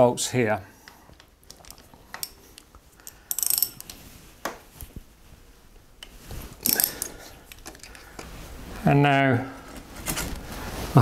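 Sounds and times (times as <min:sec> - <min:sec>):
socket ratchet clicking: 0:01.5 - 0:04.0, 0:06.6 - 0:07.9.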